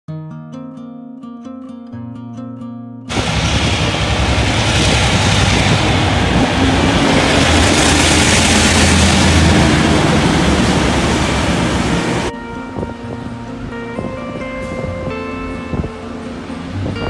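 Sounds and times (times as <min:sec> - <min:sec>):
diesel locomotive passing: 0:03.1 - 0:12.3, 0:14.7 - 0:17.0.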